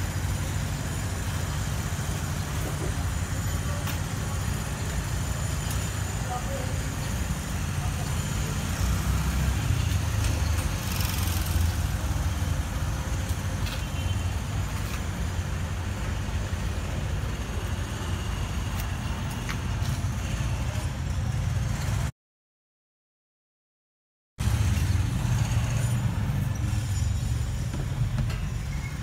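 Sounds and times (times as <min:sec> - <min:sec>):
faint outdoor noise: 0:00.0 - 0:22.1
low rumble of street traffic: 0:00.0 - 0:22.1, 0:24.4 - 0:29.0.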